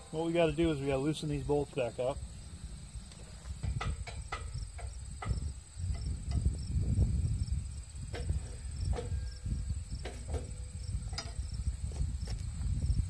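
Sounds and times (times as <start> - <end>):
crickets chirping: 0.0 - 13.0
metallic clicks and knocks: 3.5 - 6.5, 8.1 - 9.2, 10.0 - 11.4.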